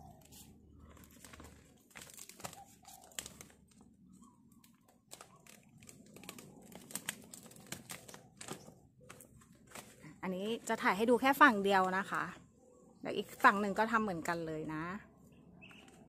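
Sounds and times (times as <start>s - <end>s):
plastic sheeting crinkling: 0.0s - 10.9s.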